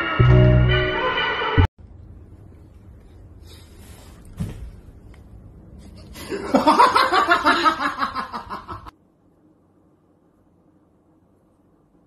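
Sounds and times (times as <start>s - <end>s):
person laughing hard: 6.2s - 8.9s.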